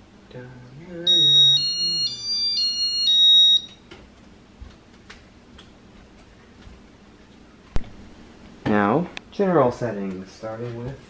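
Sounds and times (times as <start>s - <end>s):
ceiling fan humming: 0.0s - 11.0s
electronic beeper tune: 1.1s - 3.7s.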